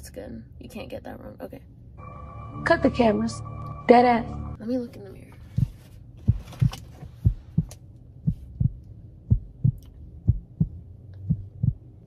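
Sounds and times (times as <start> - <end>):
heartbeat thumps: 5.4 - 12.0.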